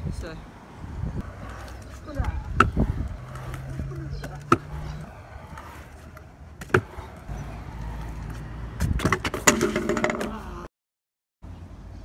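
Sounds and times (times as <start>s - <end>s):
scooter wheels rolling on concrete: 0.1s - 10.7s
scooter clattering on ramp: 8.8s - 10.4s.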